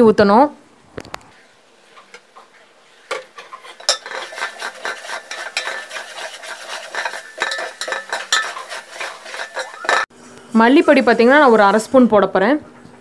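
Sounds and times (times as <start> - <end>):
spatula scraping metal pot: 1.8 - 10.1.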